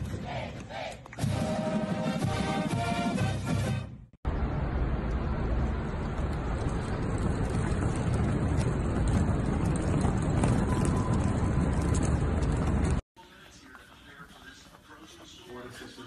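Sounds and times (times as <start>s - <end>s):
music: 1.2s - 4.1s
backpack wheels rolling on hard floor: 6.0s - 13.0s.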